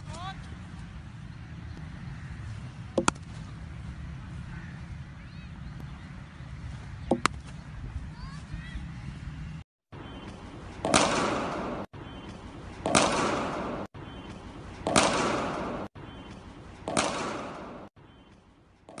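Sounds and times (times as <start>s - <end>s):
cricket bat striking ball: 3.0s - 3.3s, 7.1s - 7.4s, 10.8s - 11.9s, 12.8s - 13.9s, 14.8s - 15.9s, 16.8s - 17.9s.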